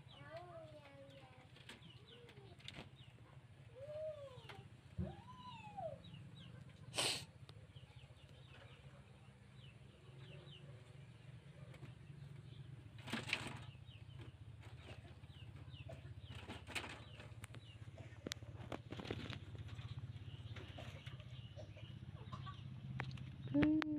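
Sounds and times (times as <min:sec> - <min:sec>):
small birds chirping: 0:00.0 - 0:23.9
rabbits rustling leaves: 0:12.2 - 0:21.4.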